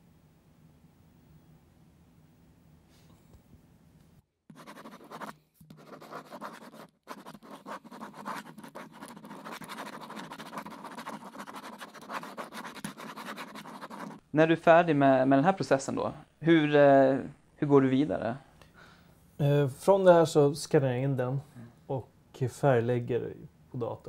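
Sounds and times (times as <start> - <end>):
pen scratching on paper: 4.5 - 14.2.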